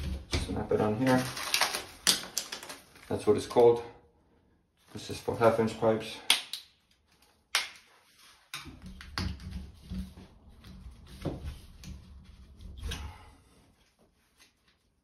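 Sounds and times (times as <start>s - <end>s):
plastic cover plates clicking: 1.1s - 2.8s.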